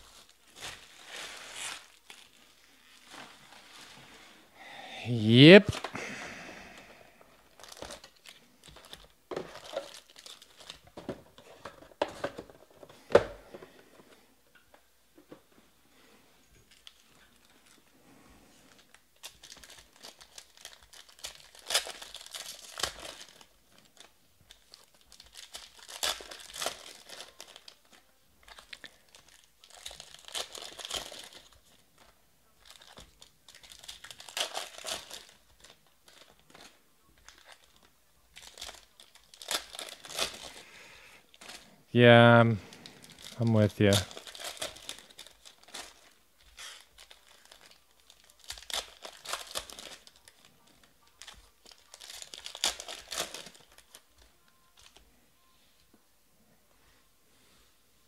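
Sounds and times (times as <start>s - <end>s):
foil wrappers crinkling and tearing: 0.0s - 4.1s, 6.7s - 12.8s, 18.6s - 41.8s, 42.6s - 55.2s.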